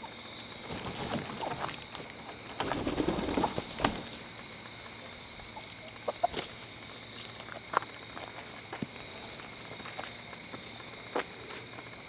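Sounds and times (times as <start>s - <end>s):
chickens clucking: 0.7s - 6.7s.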